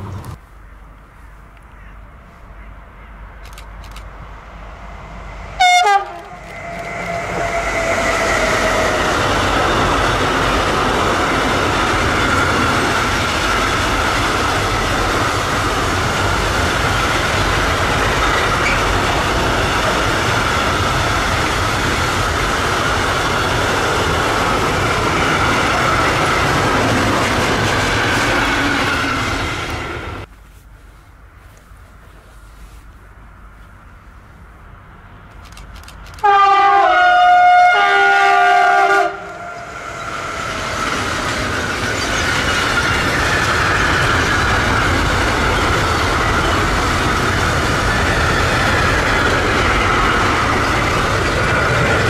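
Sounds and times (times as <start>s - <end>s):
train wheels rushing on rails: 3.4s - 30.3s, 37.8s - 52.0s
train horn blast: 5.6s - 9.0s, 36.2s - 39.8s.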